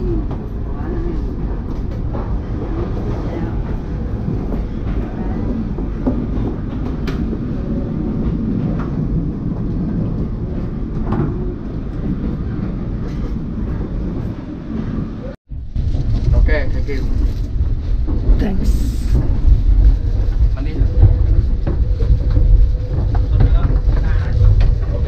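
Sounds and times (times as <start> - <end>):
train rumbling: 0.0 - 25.0.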